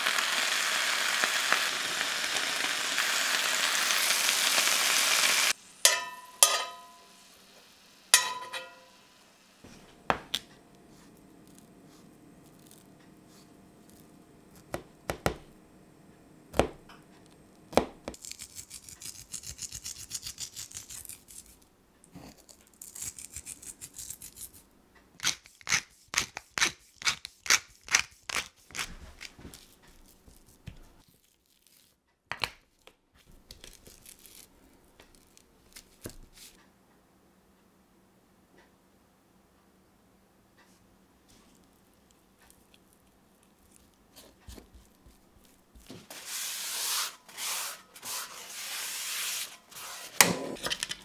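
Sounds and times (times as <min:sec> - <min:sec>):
seasoning pattering: 0:00.0 - 0:14.8
pepper mill grinding: 0:18.2 - 0:21.6.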